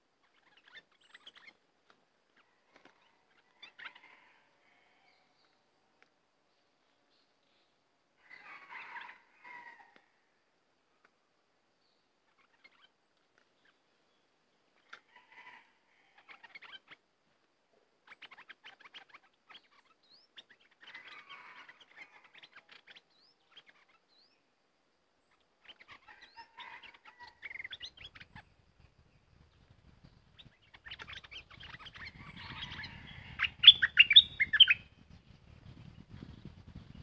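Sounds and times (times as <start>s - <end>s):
birds chirping: 0.2s - 1.6s, 25.3s - 37.0s.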